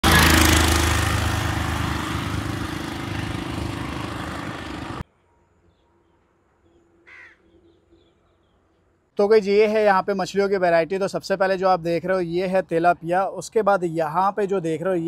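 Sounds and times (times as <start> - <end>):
small engine running: 0.0 - 5.0.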